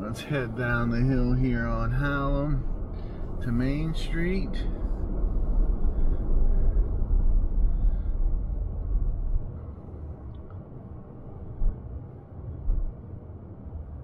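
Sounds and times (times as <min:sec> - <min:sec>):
car tyres and engine rumbling: 0:00.0 - 0:14.0.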